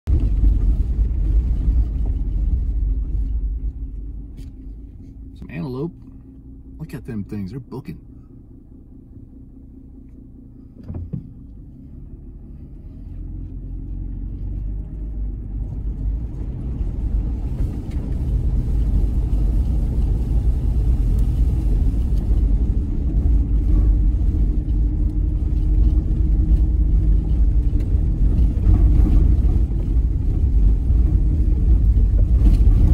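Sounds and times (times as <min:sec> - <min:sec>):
vehicle engine and tyre rumble: 0:00.0 - 0:32.9
thump: 0:10.8 - 0:11.4.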